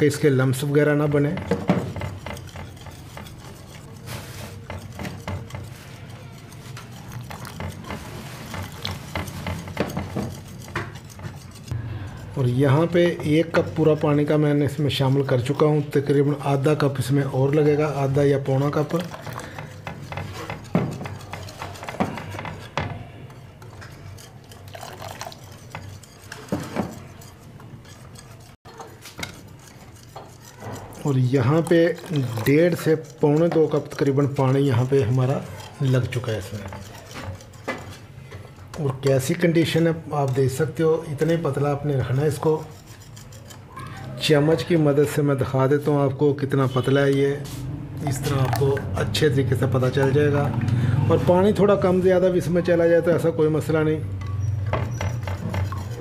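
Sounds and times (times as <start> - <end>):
whisk beating batter in bowl: 0.0 - 47.2, 48.0 - 50.6, 54.6 - 56.0
whisk wires clicking on bowl: 0.6 - 11.7, 17.8 - 41.5.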